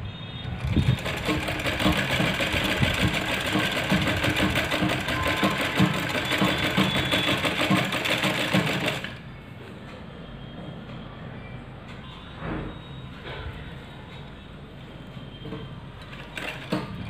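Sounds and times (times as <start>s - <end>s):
sewing machine stitching: 0.6s - 9.2s, 16.1s - 17.0s.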